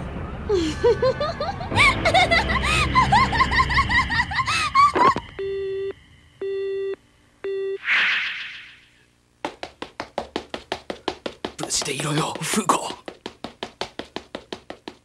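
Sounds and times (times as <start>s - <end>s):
woman laughing: 0.5s - 5.3s
telephone busy tone beeps: 5.4s - 7.8s.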